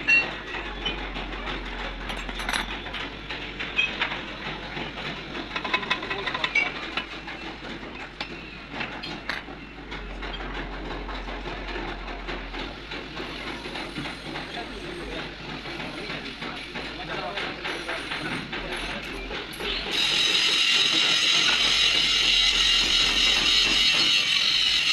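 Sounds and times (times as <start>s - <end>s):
workshop background noise: 0.0s - 24.9s
metal clinks and knocks: 2.0s - 4.1s.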